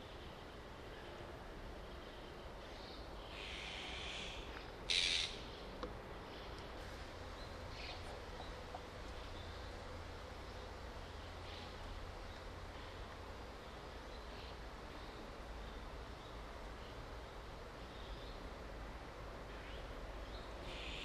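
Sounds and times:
magpies giving harsh calls: 0:03.3 - 0:05.4.

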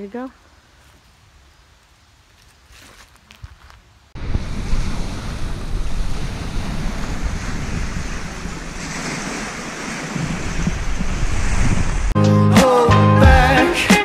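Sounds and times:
waves washing onto rocky shore: 0:04.2 - 0:12.2
wind buffeting microphone: 0:04.2 - 0:12.2.

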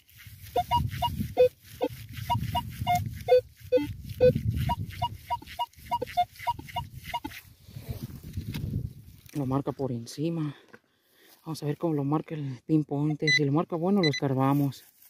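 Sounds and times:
metal detector beeps: 0:00.5 - 0:07.4, 0:13.2 - 0:14.4.

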